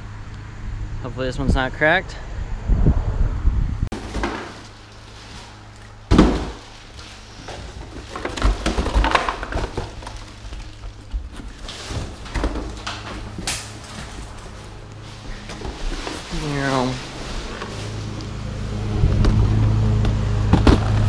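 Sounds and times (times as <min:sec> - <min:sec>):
cardboard rustling: 0:03.9 - 0:19.4.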